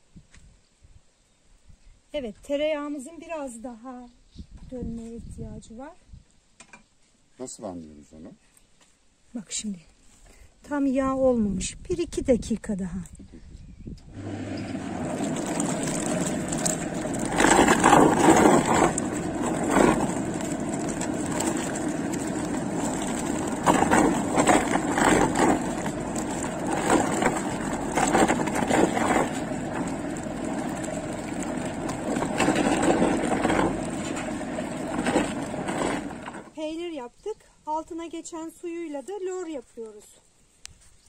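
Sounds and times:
electric mixer motor hum: 14.1s - 36.5s
liquid sloshing in metal pail: 14.2s - 36.5s.

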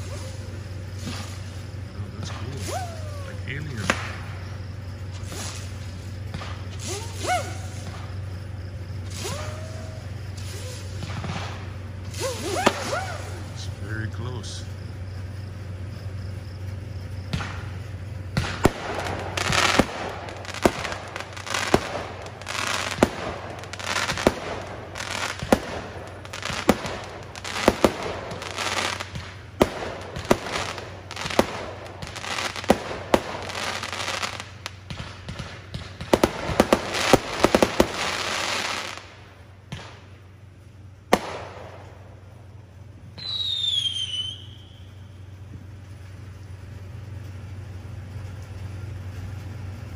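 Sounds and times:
fireworks bangs: 0.0s - 49.8s
fireworks crackling: 0.0s - 49.9s
falling whistle: 43.2s - 45.0s.

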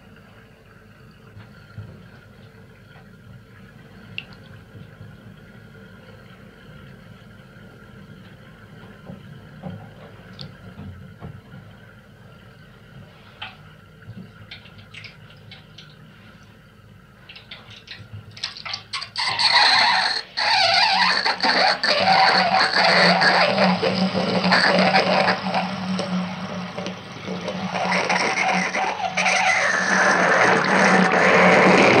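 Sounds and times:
faint drips and clicks: 0.0s - 32.0s
bath water draining: 8.2s - 32.0s.

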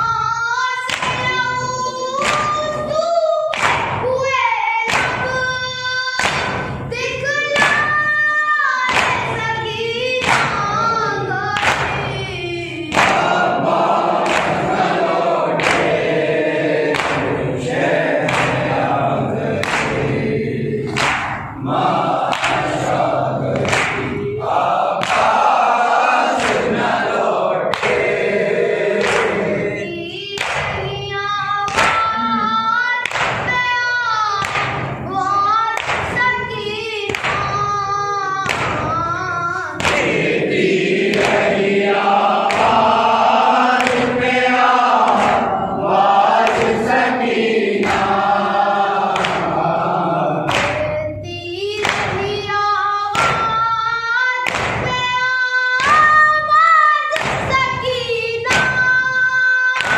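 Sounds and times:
boy singing through microphone: 0.0s - 13.6s, 20.7s - 27.9s, 29.0s - 40.5s, 50.2s - 59.9s
chest-beating slaps: 3.5s - 4.0s, 10.2s - 10.8s, 11.5s - 12.1s, 12.9s - 29.8s, 30.4s - 30.8s, 34.4s - 35.1s, 38.4s - 39.0s, 39.8s - 49.9s, 50.5s - 51.0s, 51.8s - 53.6s, 54.4s - 55.1s, 57.2s - 59.0s
men chanting in unison: 12.4s - 30.0s, 39.8s - 50.8s.

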